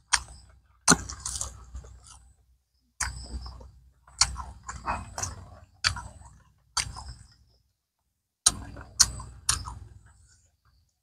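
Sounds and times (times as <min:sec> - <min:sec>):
person chewing with wet smacks: 0:03.0 - 0:07.3, 0:08.4 - 0:09.9.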